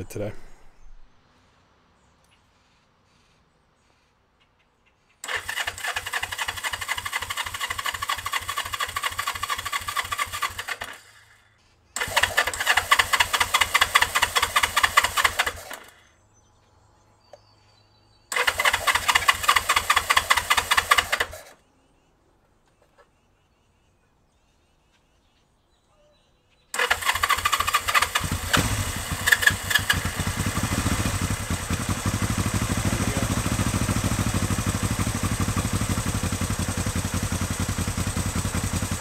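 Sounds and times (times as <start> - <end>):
engine cranking on starter: 5.2 - 11.4, 12.0 - 16.1, 18.3 - 21.6, 26.8 - 39.0.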